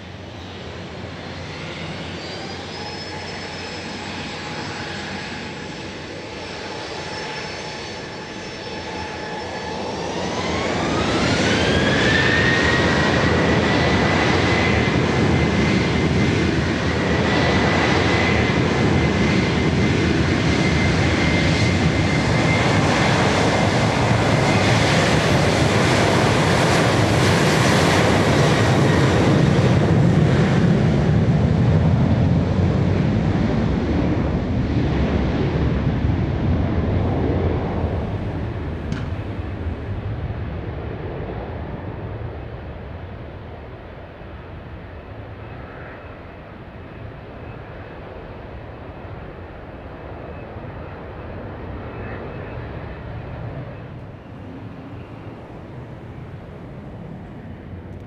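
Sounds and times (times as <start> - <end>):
jet engines spooling up: 0.0 - 34.1.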